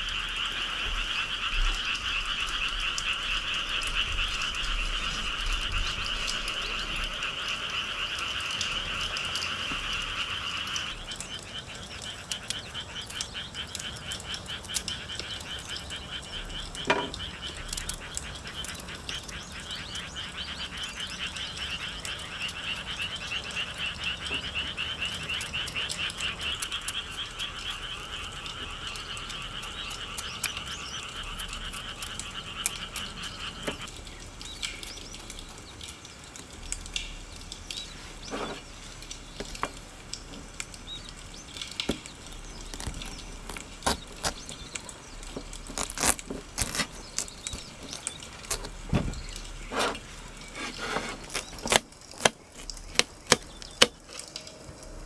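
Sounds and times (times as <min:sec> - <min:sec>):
frogs croaking: 0:00.0 - 0:55.0
knife paring melon rind: 0:45.4 - 0:48.7, 0:50.6 - 0:54.0.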